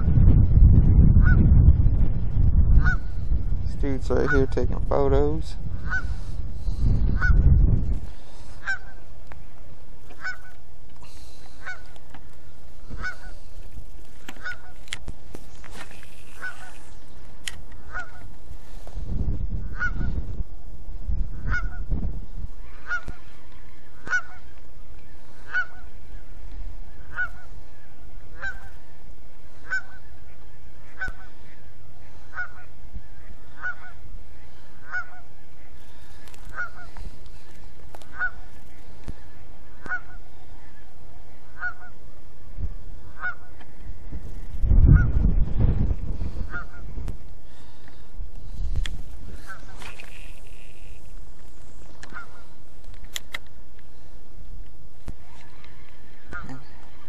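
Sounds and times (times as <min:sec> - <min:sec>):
wind on microphone: 0:00.0 - 0:57.0
goose honking: 0:05.8 - 0:06.3, 0:08.4 - 0:09.0, 0:10.1 - 0:11.9, 0:12.8 - 0:13.5, 0:14.3 - 0:14.8, 0:16.2 - 0:17.0, 0:17.8 - 0:18.3, 0:19.7 - 0:20.2, 0:21.4 - 0:21.9, 0:22.6 - 0:23.4, 0:24.0 - 0:24.5, 0:25.3 - 0:26.0, 0:27.0 - 0:27.6, 0:28.3 - 0:28.8, 0:29.5 - 0:37.2, 0:38.0 - 0:38.5, 0:39.7 - 0:40.3, 0:41.4 - 0:42.0, 0:43.0 - 0:43.6, 0:46.4 - 0:46.9, 0:49.3 - 0:51.0, 0:52.1 - 0:52.6, 0:55.5 - 0:57.0.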